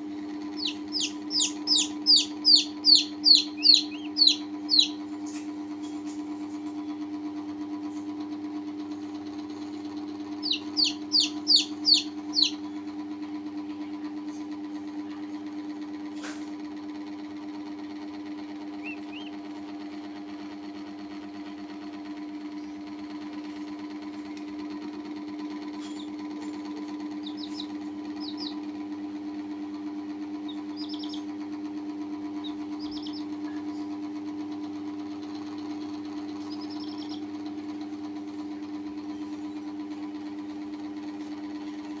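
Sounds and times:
steady mechanical hum: 0.0s - 42.0s
chicks peeping: 0.5s - 6.5s, 10.3s - 12.9s, 18.7s - 19.6s, 26.8s - 28.7s, 30.3s - 33.9s, 36.3s - 37.5s.

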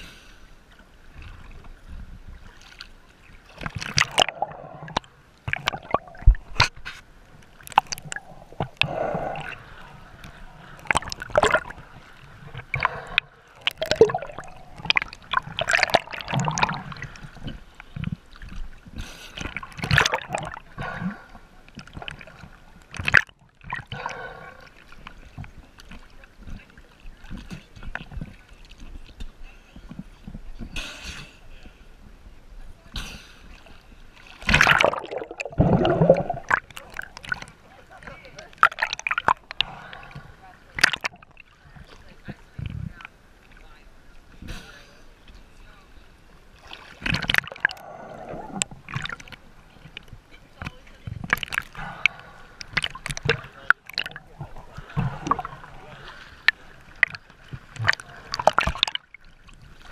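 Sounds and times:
water sloshing and gurgling: 0.0s - 59.9s
sharp water splashes: 2.6s - 17.6s, 19.0s - 21.2s, 21.8s - 24.4s, 34.2s - 37.6s, 38.4s - 41.6s, 46.6s - 50.0s, 51.2s - 59.9s.

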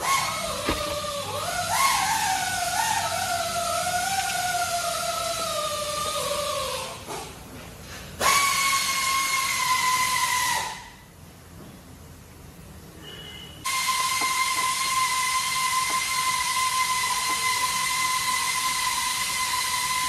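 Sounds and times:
hiss with high whistling tone: 13.7s - 20.0s.

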